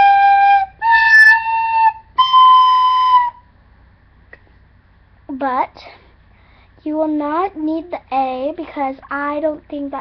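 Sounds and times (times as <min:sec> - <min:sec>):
recorder playing rising notes: 0:00.0 - 0:03.4.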